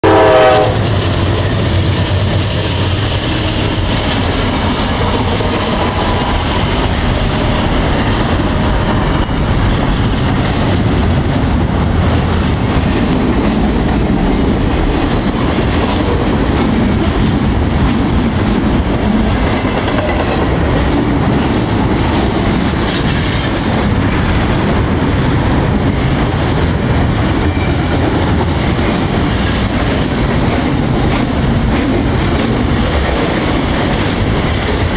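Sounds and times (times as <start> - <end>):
train horn: 0.0 - 1.4
diesel locomotive engine hum: 0.0 - 34.9
train cars rumbling over rails: 0.0 - 34.9.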